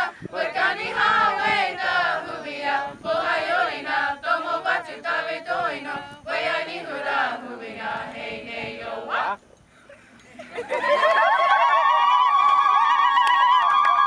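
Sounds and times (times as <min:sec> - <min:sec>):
choir singing a cappella: 0:00.0 - 0:09.4.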